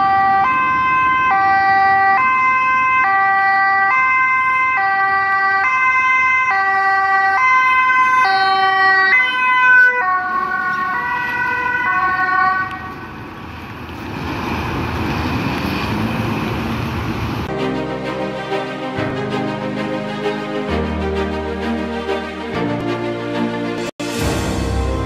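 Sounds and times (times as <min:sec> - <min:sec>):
two-tone ambulance siren: 0:00.0 - 0:13.3
engine and road noise: 0:00.0 - 0:25.0.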